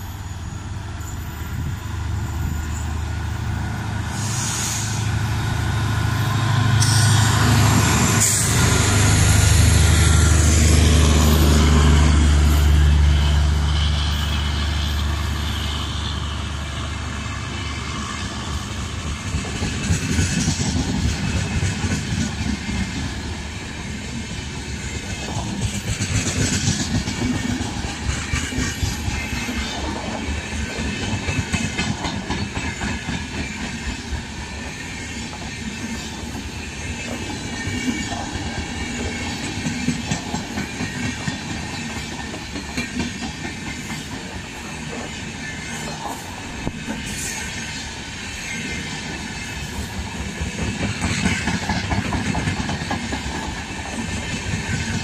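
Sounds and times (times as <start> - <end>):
train coaches passing: 0.0 - 55.0
wheels clacking over rail joints: 35.2 - 47.6, 48.6 - 55.0.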